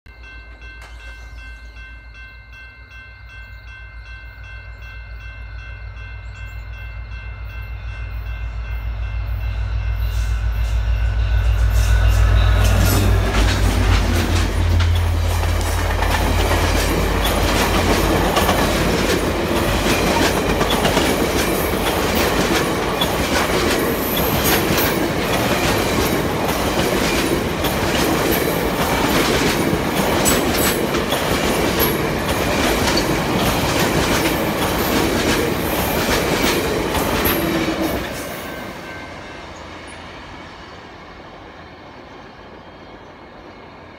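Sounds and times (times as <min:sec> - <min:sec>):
diesel locomotive rumble: 0:07.0 - 0:40.0
train horn chord: 0:07.8 - 0:15.8
train wheels clickety-clack: 0:10.1 - 0:38.8.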